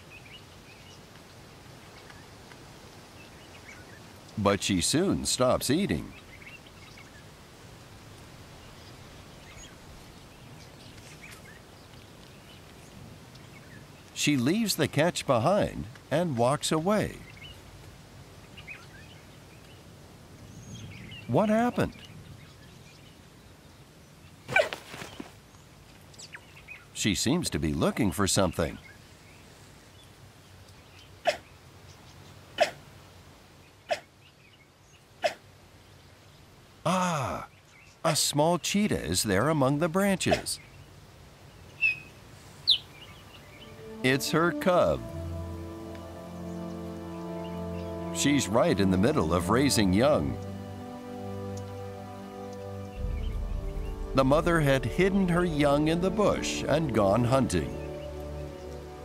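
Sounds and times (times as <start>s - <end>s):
outdoor background noise: 0.0s - 59.0s
faint bird chirps: 41.6s - 44.0s.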